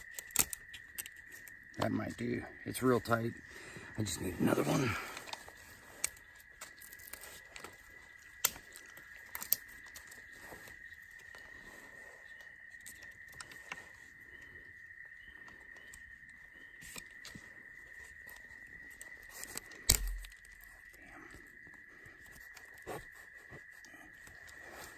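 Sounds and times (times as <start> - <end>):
crickets chirping: 0.0 - 24.9.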